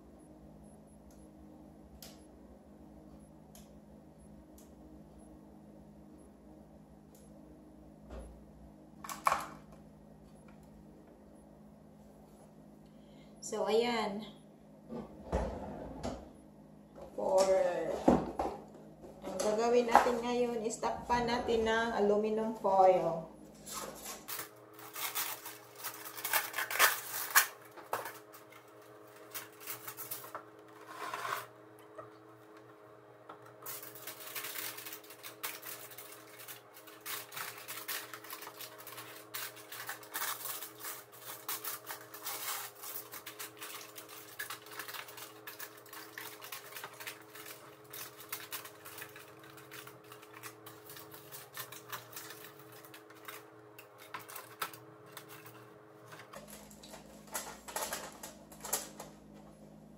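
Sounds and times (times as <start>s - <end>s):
faint steady hum: 0.0s - 59.9s
aluminum foil tearing: 23.6s - 31.5s, 33.6s - 59.1s
foil crinkling and rustling: 23.6s - 31.5s, 33.6s - 59.4s.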